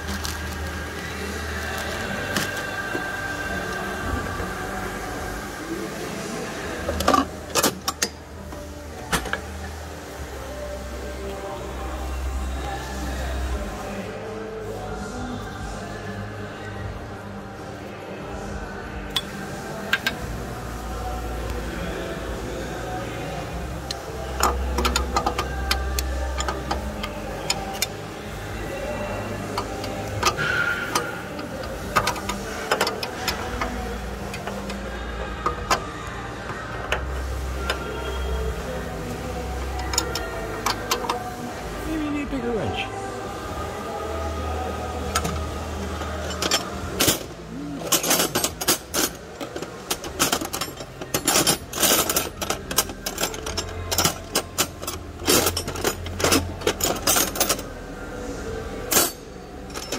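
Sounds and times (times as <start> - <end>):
metal tools clattering: 46.1 - 57.8, 58.9 - 59.9.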